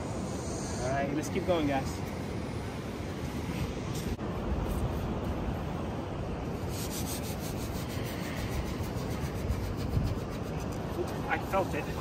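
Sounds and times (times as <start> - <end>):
wind rumble on microphone: 0.0 - 12.0
rubbing scraping noise: 6.6 - 12.0.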